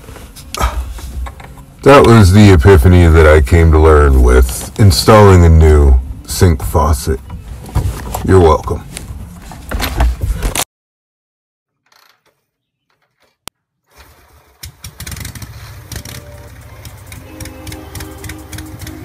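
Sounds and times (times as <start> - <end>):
engine starting and running: 13.8 - 19.0
motorcycle riding noise: 14.1 - 19.0
faint music: 15.7 - 19.0.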